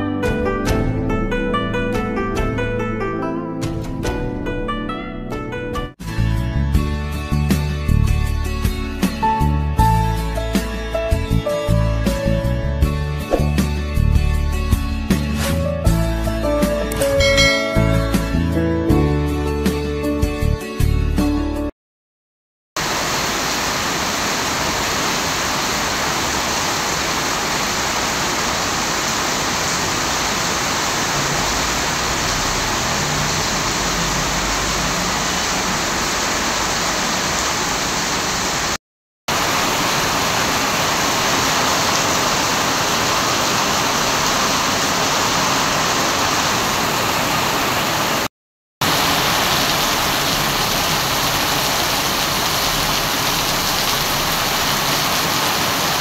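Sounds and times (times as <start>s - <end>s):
heavy rain on wet paving: 22.8s - 56.0s.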